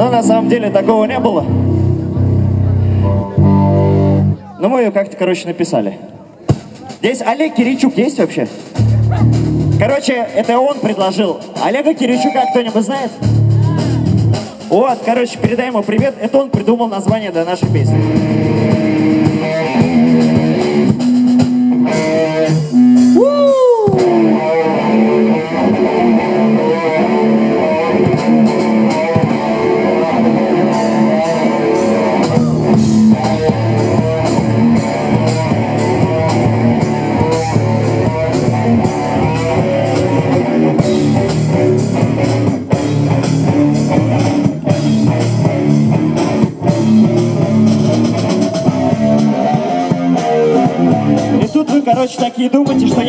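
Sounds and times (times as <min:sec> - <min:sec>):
electric guitar pitch glide: 0:00.0 - 0:04.4, 0:17.9 - 0:51.4
rock band playing instrumental: 0:00.0 - 0:04.7, 0:06.1 - 0:53.0.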